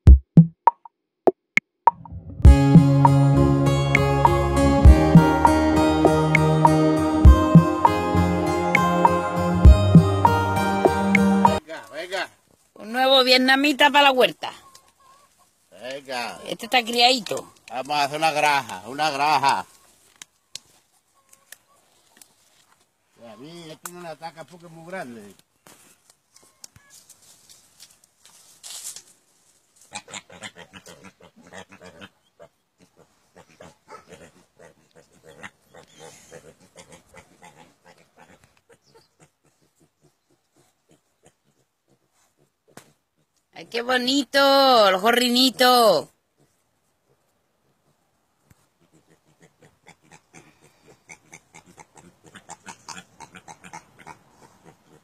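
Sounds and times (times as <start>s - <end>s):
pigs grunting: 29.9s - 42.8s, 48.8s - 55.0s.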